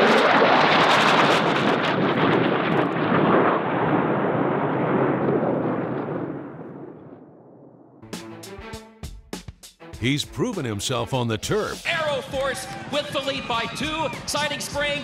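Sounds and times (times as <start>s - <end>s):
deep rumbling boom: 0.4s - 8.0s.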